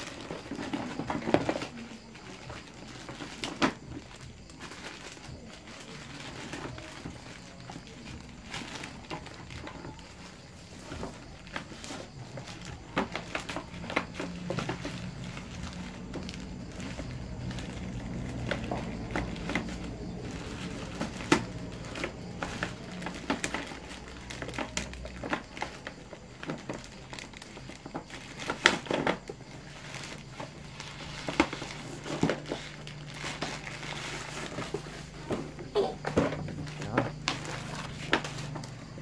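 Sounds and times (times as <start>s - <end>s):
plastic bag crinkling: 0.0s - 39.0s.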